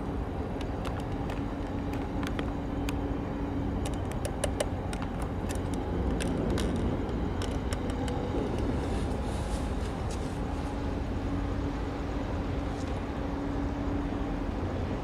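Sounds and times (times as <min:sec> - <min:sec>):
faint steady hum: 0:00.0 - 0:15.0
low background rumble: 0:00.0 - 0:15.0
sharp ticks: 0:03.8 - 0:08.7.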